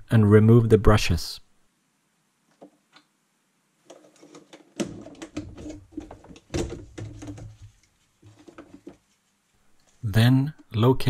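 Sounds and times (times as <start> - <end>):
plastic clicks and rattling: 3.8 - 9.0
sharp knocks and clatter: 3.9 - 9.0.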